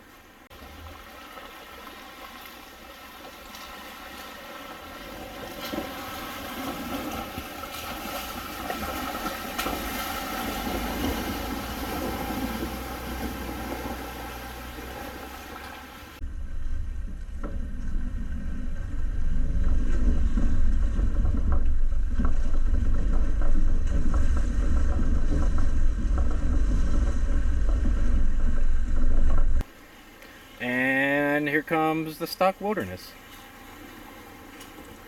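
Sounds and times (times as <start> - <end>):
water splashing: 0.5 - 16.2, 29.6 - 35.0
vehicle engine running: 0.5 - 29.7.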